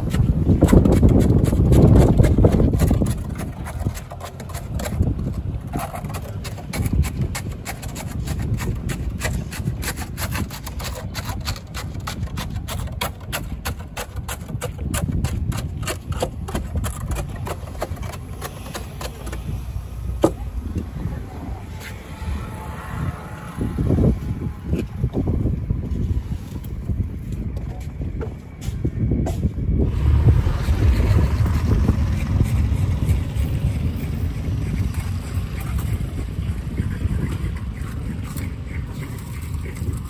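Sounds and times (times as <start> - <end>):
low rumble: 19.4 - 39.2.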